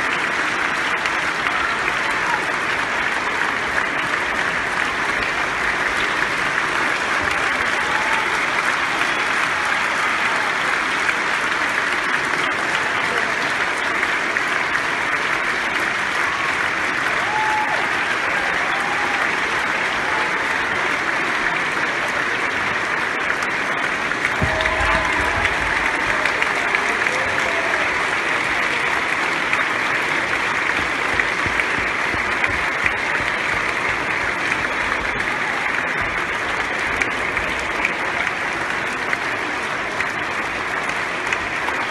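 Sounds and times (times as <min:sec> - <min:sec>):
audience applauding: 0:00.0 - 0:41.9.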